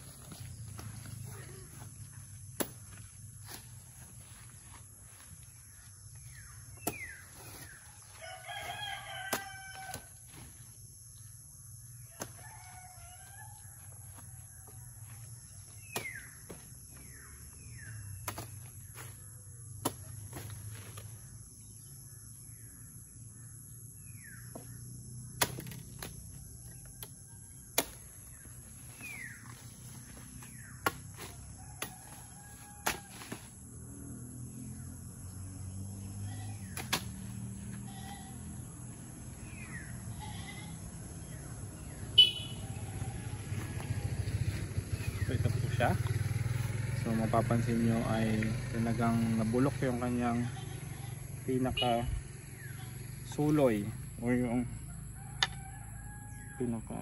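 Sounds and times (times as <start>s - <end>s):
birds chirping: 0.0s - 9.6s, 14.6s - 20.5s, 26.1s - 31.3s, 37.9s - 54.7s
rooster crowing: 7.8s - 10.2s, 12.1s - 15.0s, 31.3s - 33.6s, 41.3s - 45.2s, 54.8s - 57.0s.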